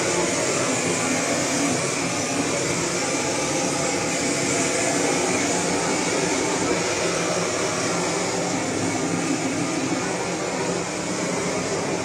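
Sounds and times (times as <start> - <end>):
gas blowtorch hissing: 0.0 - 12.0.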